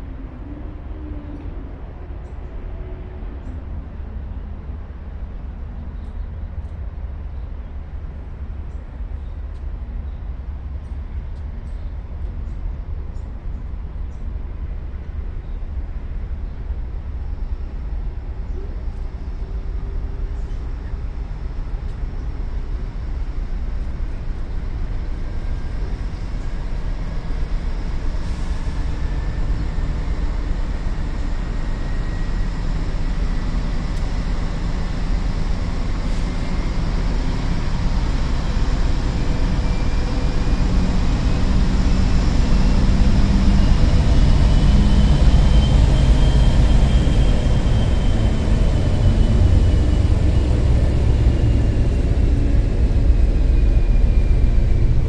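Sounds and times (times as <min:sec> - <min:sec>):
locomotive engine rumble: 0:00.0 - 0:55.0
faint high whine: 0:13.1 - 0:55.0.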